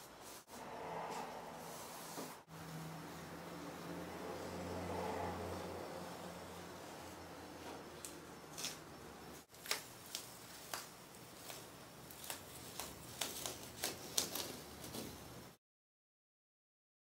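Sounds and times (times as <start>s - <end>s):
tape peeling off wall: 8.0s - 8.8s, 9.4s - 15.4s.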